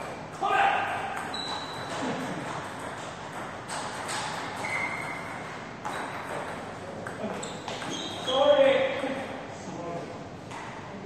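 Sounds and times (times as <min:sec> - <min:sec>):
short high squeaks: 0:01.3 - 0:02.0, 0:04.6 - 0:05.4, 0:07.4 - 0:08.6.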